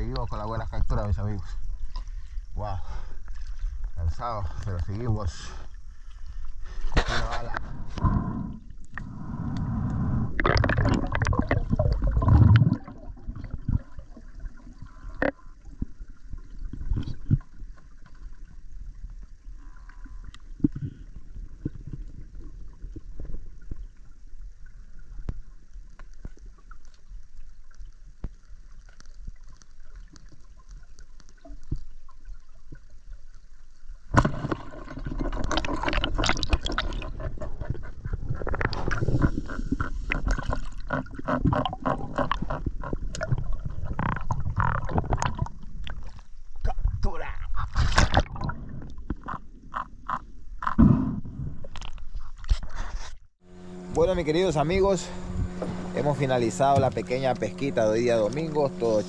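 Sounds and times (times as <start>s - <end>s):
muffled underwater rushing water: 0.0s - 52.4s, 53.4s - 59.0s
sharp clicks underwater: 8.8s - 13.9s, 19.2s - 24.1s, 34.1s - 50.9s.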